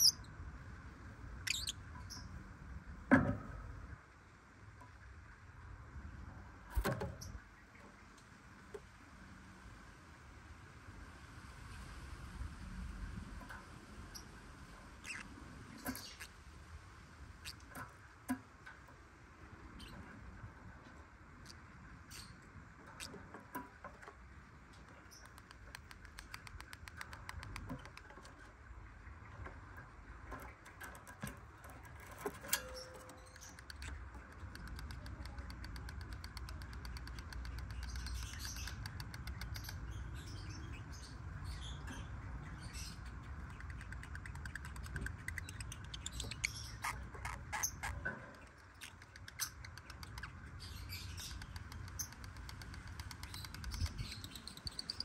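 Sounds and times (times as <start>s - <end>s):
low steady hum: 0.0s - 55.0s
lovebirds chirping: 1.4s - 2.4s, 15.0s - 16.4s, 24.8s - 28.5s, 30.3s - 55.0s
clicks and taps: 24.8s - 28.4s, 30.3s - 39.8s, 51.3s - 54.0s.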